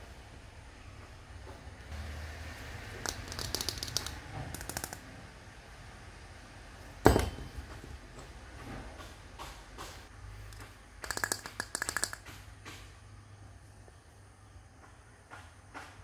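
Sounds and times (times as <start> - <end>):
plastic cups clattering: 3.0 - 5.0, 10.6 - 12.3
cup knocking on tabletop: 7.1 - 7.6.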